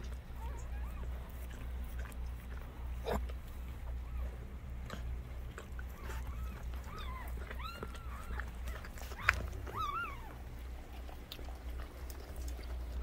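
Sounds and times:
puppy squealing: 0:05.8 - 0:10.5.

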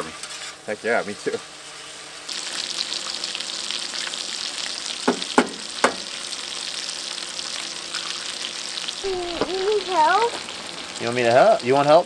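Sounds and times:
sausage sizzling on steel: 0:00.0 - 0:12.0
sharp knocks: 0:05.1 - 0:06.0.

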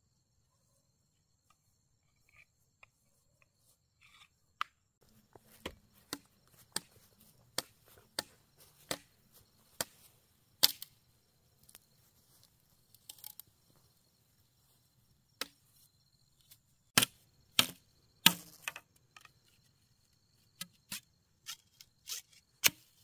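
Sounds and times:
blade chopping wood: 0:17.0 - 0:18.8, 0:22.6 - 0:22.9.

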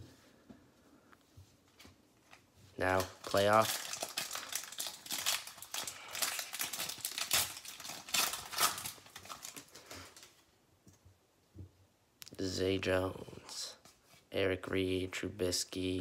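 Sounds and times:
foil wrapper tearing and crinkling: 0:02.8 - 0:10.3.

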